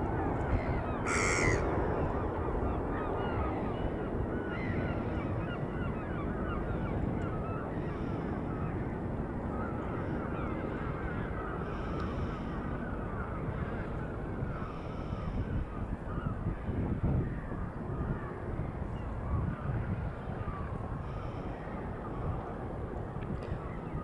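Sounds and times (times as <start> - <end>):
flock of birds calling: 0.5 - 1.7.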